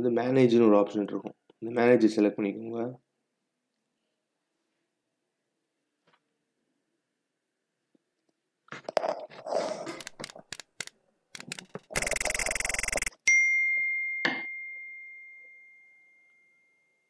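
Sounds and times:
bright bell ding: 13.2s - 17.0s.

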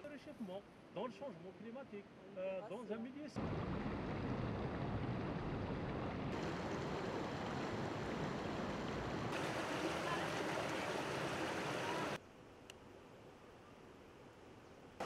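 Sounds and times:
stream water flowing over rocks: 6.3s - 12.2s.

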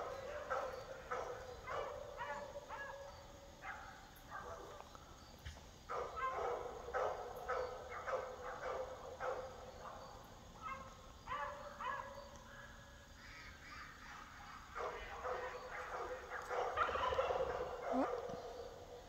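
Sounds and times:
animal calls: 7.5s - 18.8s.

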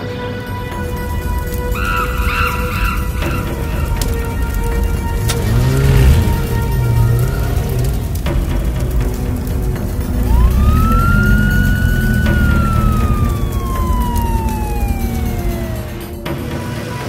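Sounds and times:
low rumbling music: 0.0s - 17.0s
cartoon whistling tone: 10.2s - 16.2s.

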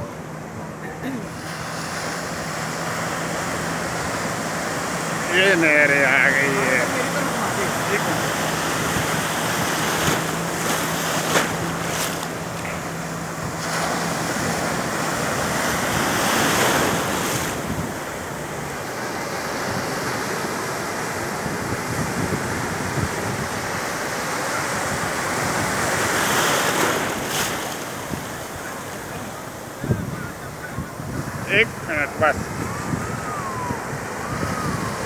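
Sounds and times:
sea surf breaking: 0.0s - 35.0s.

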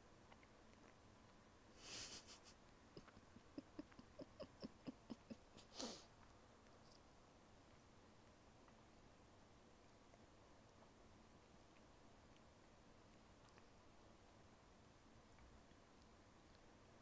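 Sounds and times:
wet chewing clicks and smacks: 0.1s - 1.6s, 2.6s - 5.6s, 9.8s - 17.0s
breathy puffs: 3.0s - 6.1s.

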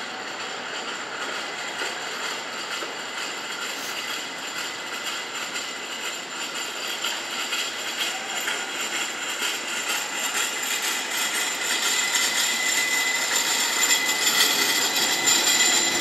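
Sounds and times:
electric streetcar running: 0.0s - 16.0s
thin high tone: 3.8s - 16.0s.

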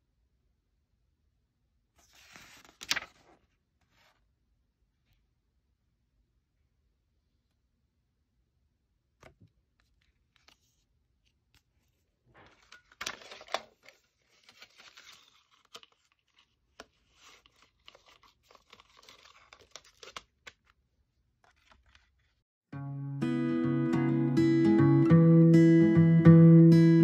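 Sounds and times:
paper rustling against plastic: 2.0s - 4.2s, 11.6s - 20.7s.

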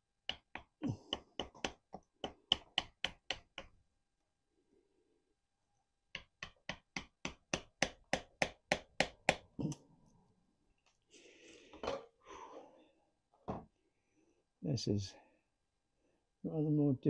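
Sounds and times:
hammer striking wood: 0.3s - 3.8s, 6.1s - 9.5s.

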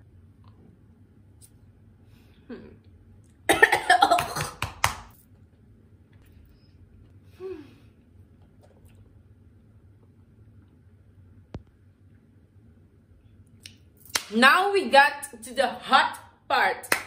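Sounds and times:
woman coughing: 3.5s - 4.7s.

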